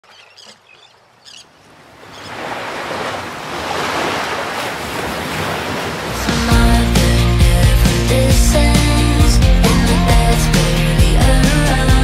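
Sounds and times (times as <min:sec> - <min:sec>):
bird chirp: 0:00.0 - 0:02.4
ocean surf on a beach: 0:01.5 - 0:06.6
loud music: 0:06.2 - 0:12.0.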